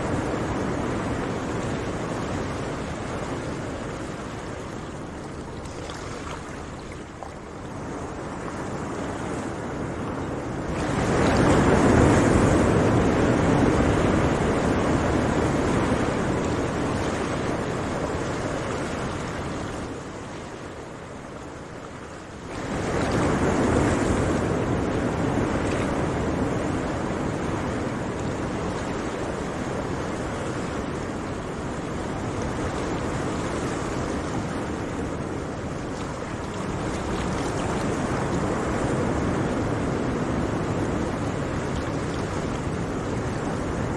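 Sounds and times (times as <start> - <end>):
sea waves breaking on shore: 0.0 - 43.9.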